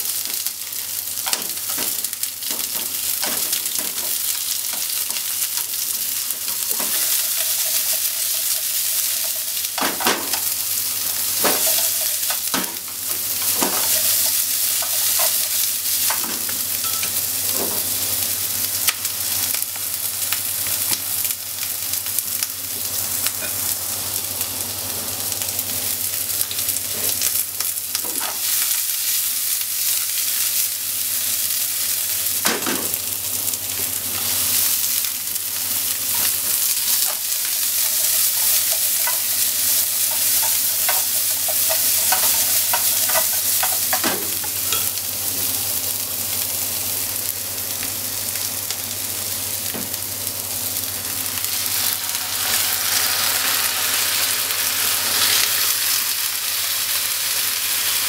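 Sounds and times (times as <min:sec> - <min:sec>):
onions sizzling in a frying pan: 0:00.0 - 0:58.0.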